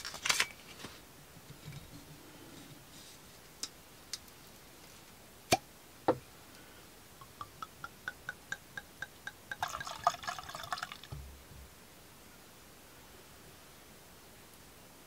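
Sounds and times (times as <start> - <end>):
liquid splashing into glass: 9.5 - 11.1.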